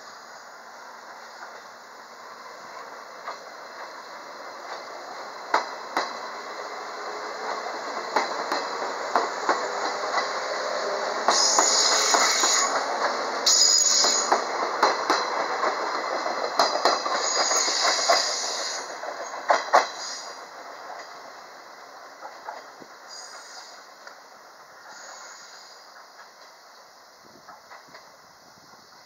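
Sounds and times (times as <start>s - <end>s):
electric train accelerating: 0.0s - 26.6s
wheels clicking over rail joints: 2.8s - 6.4s, 7.4s - 21.2s, 22.2s - 24.2s.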